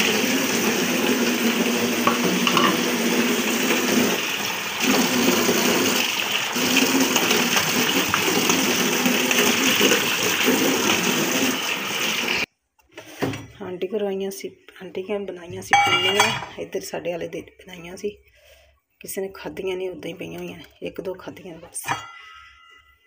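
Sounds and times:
water splashing over dishes: 0.0s - 12.4s, 15.7s - 16.6s
tap running into steel sink: 2.0s - 2.9s.

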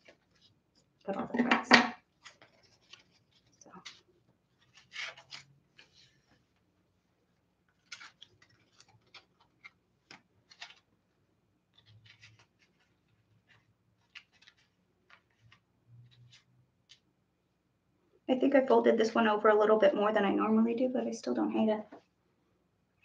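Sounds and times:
rustling of hair and fabric: 2.0s - 17.1s.

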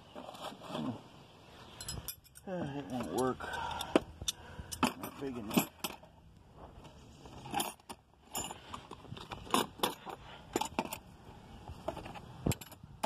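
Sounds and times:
metal wrenches clinking: 1.8s - 6.1s, 7.4s - 11.1s.

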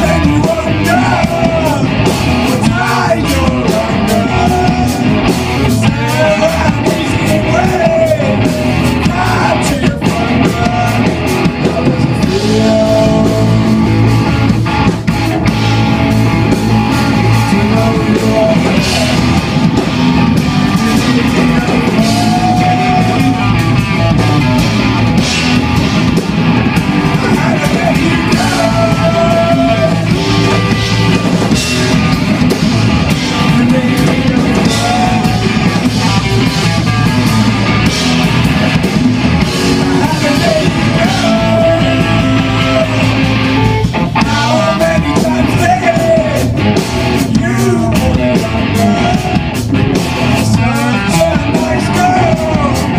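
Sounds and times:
person singing into a microphone: 0.0s - 14.2s, 16.9s - 19.4s, 20.7s - 23.7s, 27.0s - 30.7s, 33.1s - 36.6s, 39.6s - 43.4s, 44.0s - 46.6s, 47.2s - 49.6s, 50.3s - 52.9s
distorted electric guitars: 0.0s - 52.9s
drum kit: 0.0s - 52.9s.

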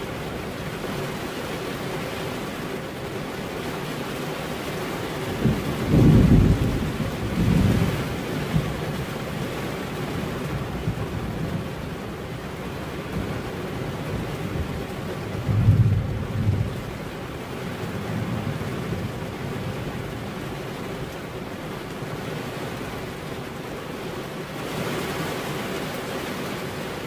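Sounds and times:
steady rain falling: 0.0s - 27.0s
low rolls of thunder: 5.3s - 9.6s, 10.2s - 12.0s, 13.0s - 20.7s.

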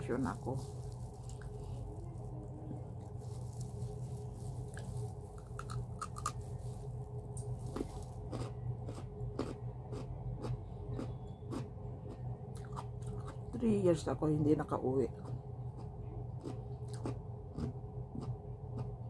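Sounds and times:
low hum: 0.0s - 19.0s
person chewing raw carrot: 3.0s - 13.5s, 15.2s - 19.0s.

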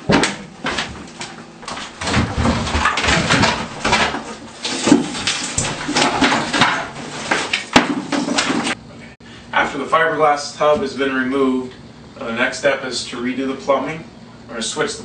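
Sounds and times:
knocks and sharp cracks: 0.0s - 8.8s
fiberglass panels scraping and clattering: 0.1s - 8.8s.

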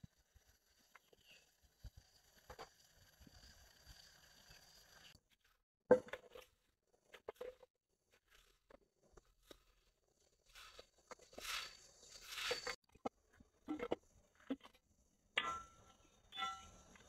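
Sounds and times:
hoe scraping and striking soil: 10.5s - 12.8s.

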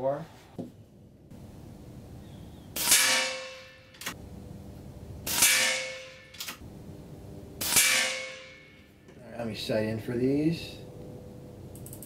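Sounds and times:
air rifle shots: 2.8s - 4.2s, 5.2s - 6.6s, 7.6s - 8.6s.

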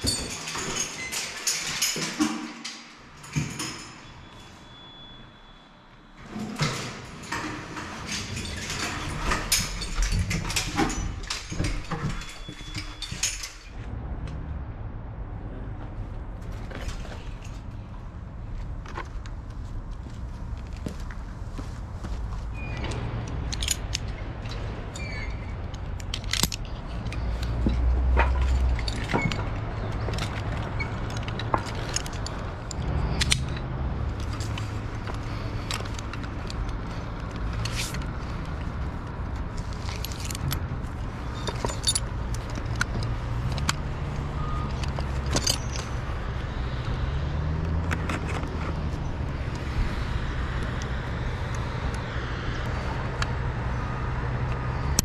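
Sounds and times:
tools clinking: 0.0s - 5.1s, 6.2s - 13.8s, 22.6s - 52.0s
engine rumble: 6.1s - 55.0s.

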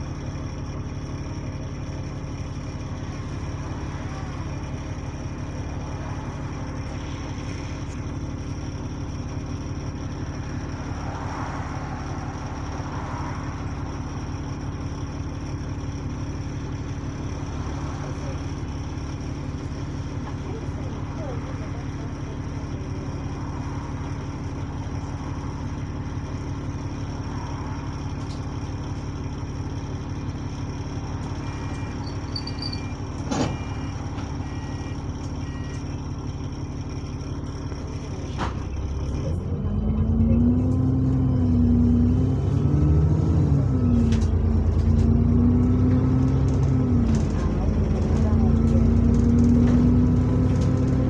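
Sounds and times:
bus diesel engine: 0.0s - 51.0s
electronic beeps: 31.4s - 36.0s.

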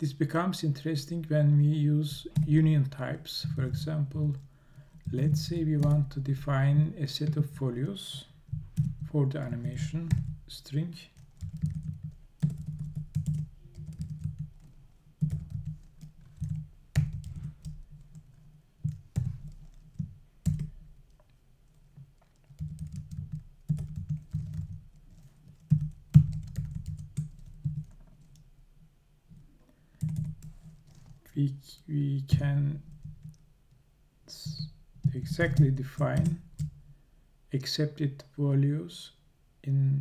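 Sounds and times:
typing on a computer keyboard: 11.2s - 21.3s, 22.2s - 28.4s, 30.0s - 31.2s, 35.1s - 36.8s.

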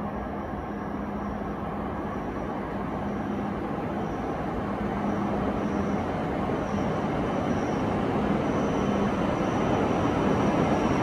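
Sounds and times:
train running with low hum: 0.0s - 11.0s.

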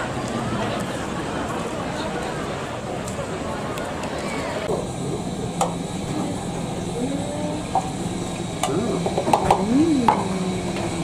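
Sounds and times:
steady hum: 4.6s - 11.0s
background voices: 6.0s - 11.0s.

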